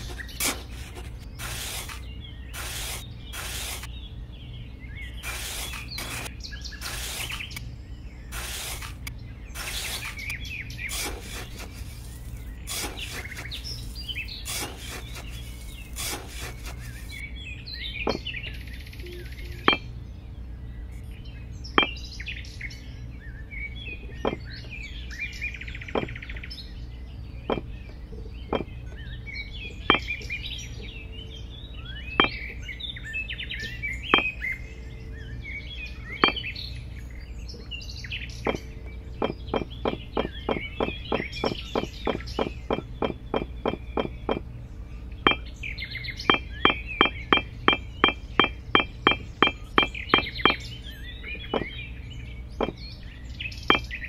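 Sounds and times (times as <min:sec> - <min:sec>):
hand tool scraping sand: 0:00.0 - 0:03.9, 0:05.2 - 0:07.6, 0:08.3 - 0:10.3, 0:10.9 - 0:17.2
birds chirping: 0:00.0 - 0:54.0.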